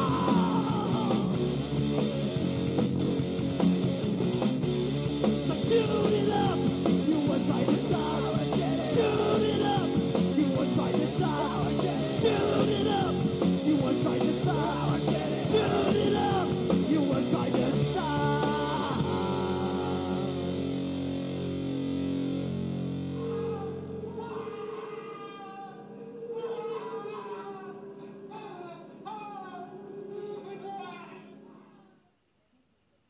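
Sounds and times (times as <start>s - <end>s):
punk rock song: 0.0s - 30.8s.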